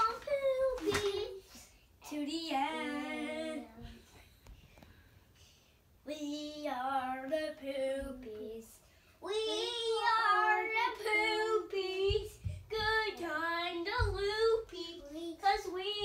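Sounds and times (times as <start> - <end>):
boys singing: 2.1 - 4.0, 9.4 - 16.0.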